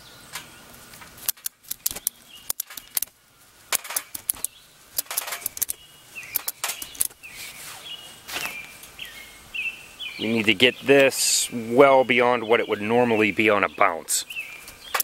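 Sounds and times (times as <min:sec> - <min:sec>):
birds chirping faintly: 0:00.0 - 0:15.0
ratchet strap clicking: 0:01.2 - 0:03.1, 0:03.7 - 0:07.2.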